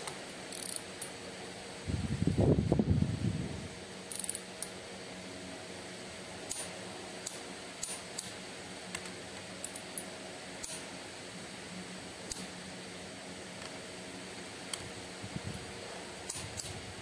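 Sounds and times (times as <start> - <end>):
faint steady hum: 0.0 - 17.0
torque wrench clicks: 0.5 - 1.1, 4.1 - 4.7, 6.5 - 8.3, 9.6 - 10.8.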